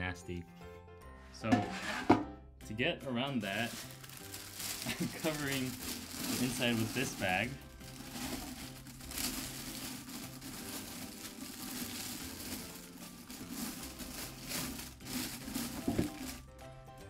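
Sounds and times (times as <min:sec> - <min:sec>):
plastic bag crinkling: 0:03.4 - 0:16.5.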